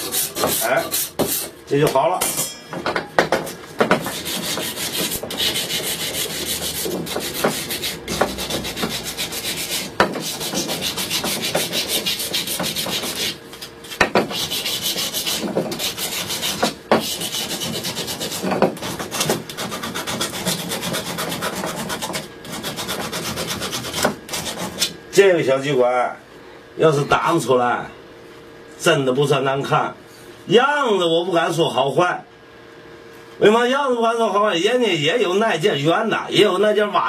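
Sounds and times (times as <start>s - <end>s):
abrasive rubbing on wood: 3.9s - 13.4s, 14.1s - 24.9s.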